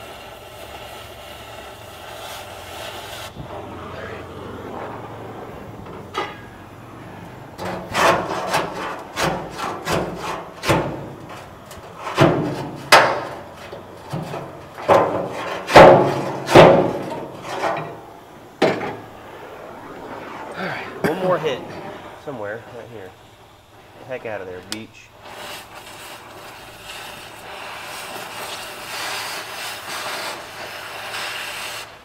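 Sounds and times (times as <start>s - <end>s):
hammer striking sheet metal: 6.1s - 6.5s, 12.0s - 13.4s, 14.8s - 17.9s.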